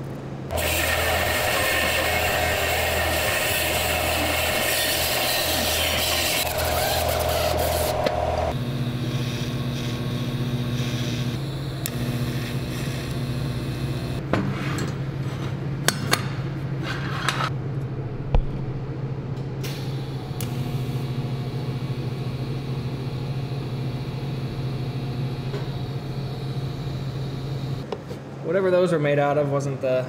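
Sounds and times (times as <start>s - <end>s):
welding arc humming: 0.5s - 14.2s, 17.8s - 27.9s.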